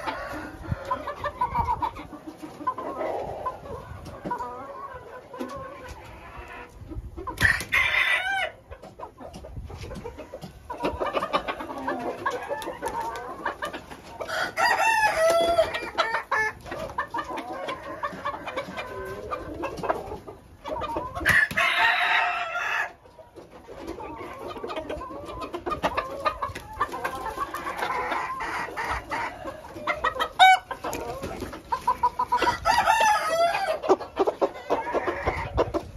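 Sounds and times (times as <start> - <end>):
roosters crowing: 0.0 - 1.8, 7.4 - 8.7, 10.9 - 20.1, 20.8 - 23.0, 25.9 - 35.8
chickens clucking: 0.0 - 35.9.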